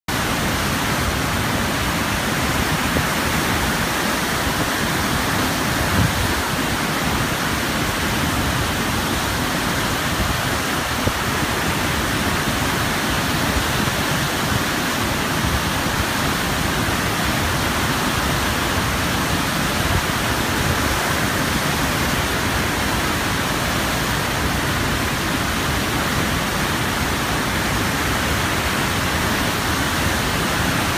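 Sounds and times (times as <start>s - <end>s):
waterfall rushing: 0.1s - 30.9s.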